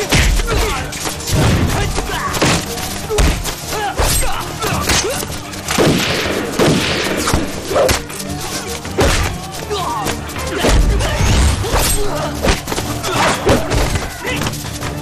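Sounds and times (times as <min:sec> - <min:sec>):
gunshots: 0:05.7 - 0:08.1.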